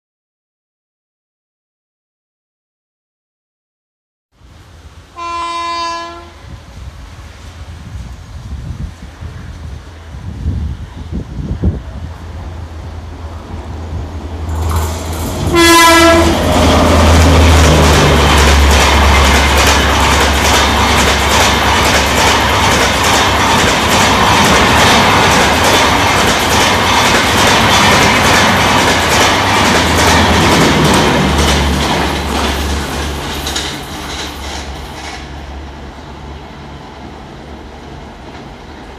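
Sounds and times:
train horn blast: 5.1s - 6.5s, 15.4s - 17.3s
train wheels clattering over rail joints: 14.4s - 35.5s.

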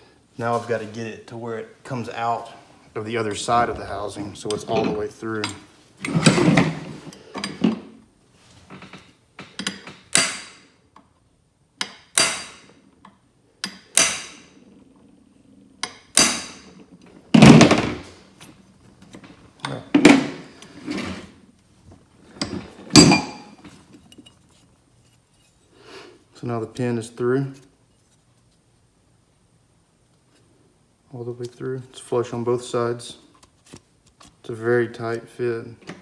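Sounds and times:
hammer striking steel punch: 10.1s - 10.6s, 11.8s - 12.6s, 13.7s - 14.4s.

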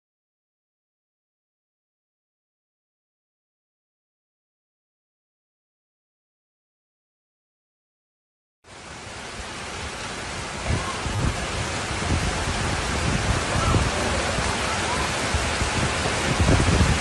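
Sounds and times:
heavy rain: 8.7s - 17.0s
rushing floodwater: 8.7s - 17.0s
wind buffeting microphone: 10.2s - 17.0s.

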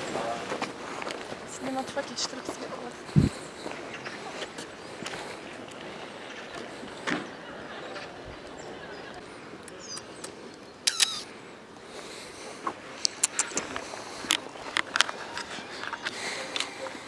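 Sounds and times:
outdoor background hiss: 0.0s - 17.0s
sharp clicks: 9.6s - 11.3s, 13.0s - 15.0s.

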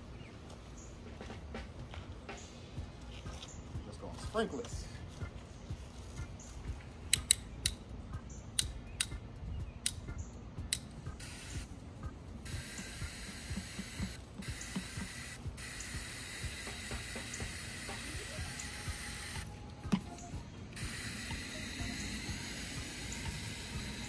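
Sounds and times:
garden hose spraying water: 11.0s - 24.0s.

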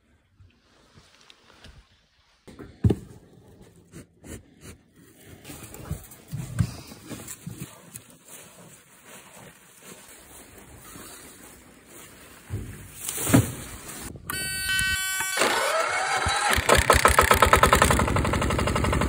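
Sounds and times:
walking tractor engine starting: 14.3s - 19.0s.

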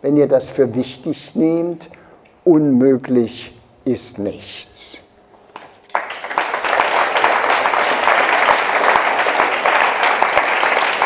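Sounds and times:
audience applauding: 5.9s - 11.0s.

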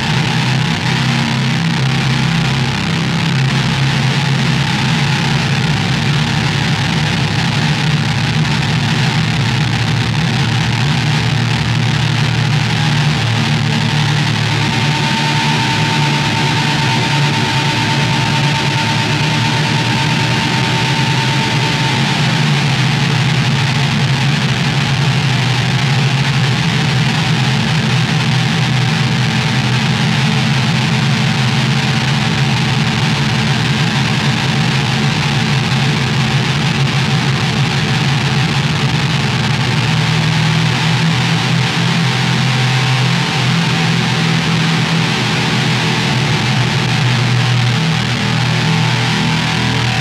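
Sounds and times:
low synth drone: 0.0s - 50.0s
noisy hiss: 0.0s - 50.0s
high steady tone: 11.9s - 24.5s.

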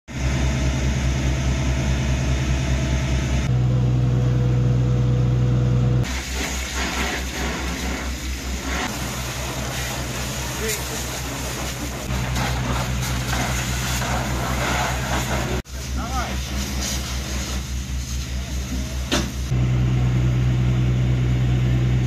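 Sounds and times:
diesel engine running: 0.1s - 22.0s
hiss: 6.0s - 19.5s.

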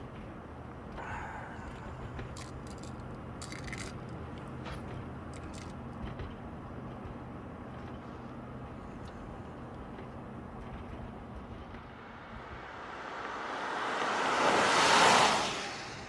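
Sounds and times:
car engine and road noise: 0.0s - 16.0s
short clicks and crunches: 2.2s - 5.8s.

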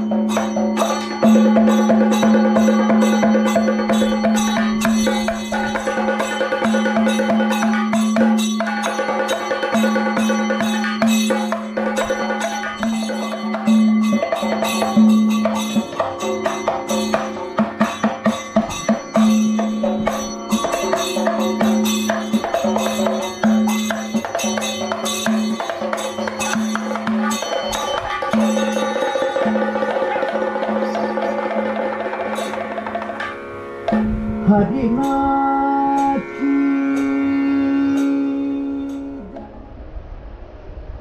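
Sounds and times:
barrel drum played by hand: 0.0s - 36.3s
person singing long notes: 34.0s - 39.8s.

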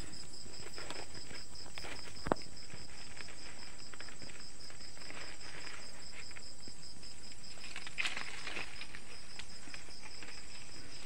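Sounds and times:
crickets chirping: 0.0s - 11.0s
light rustling: 7.3s - 11.0s.

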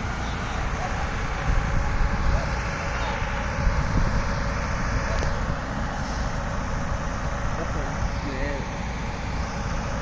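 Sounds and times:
diesel engines droning: 0.0s - 10.0s
wind rumble on microphone: 1.2s - 2.7s, 3.3s - 5.7s.

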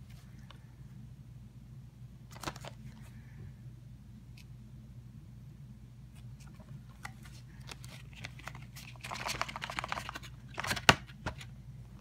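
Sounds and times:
cardboard rustling: 6.4s - 11.5s.

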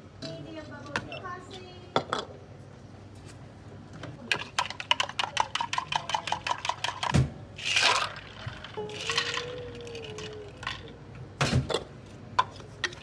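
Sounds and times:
ice rattling in shaker cup: 4.3s - 11.0s.

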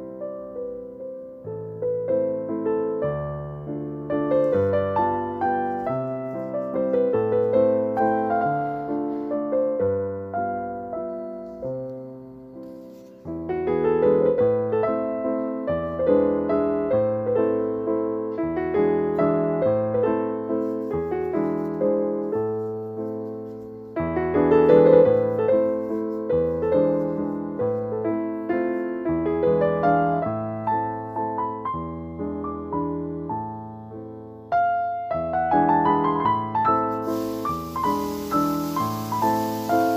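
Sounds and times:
piano music: 0.0s - 39.9s.

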